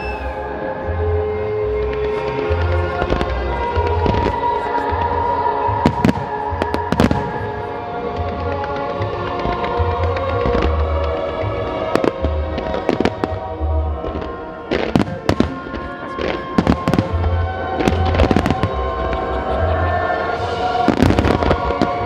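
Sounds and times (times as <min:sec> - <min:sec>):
fireworks bursting: 0:05.8 - 0:22.0.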